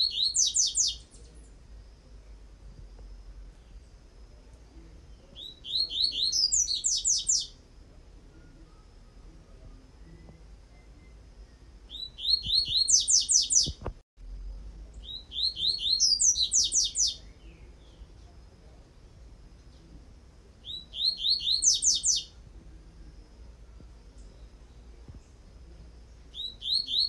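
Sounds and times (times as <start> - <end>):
bird singing rapid repeated notes: 0.0 - 1.6, 5.2 - 7.6, 10.4 - 13.9, 15.0 - 18.2, 20.6 - 22.4, 26.1 - 27.0.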